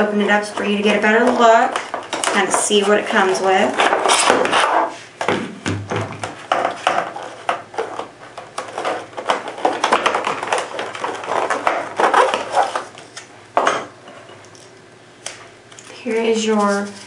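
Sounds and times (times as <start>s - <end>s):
paper rustling: 6.6s - 13.3s
plastic packaging crackling: 7.3s - 13.3s.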